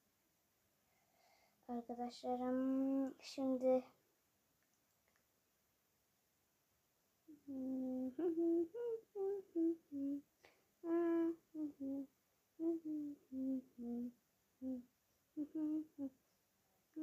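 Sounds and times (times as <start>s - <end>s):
girl humming a tune: 7.3s - 16.2s.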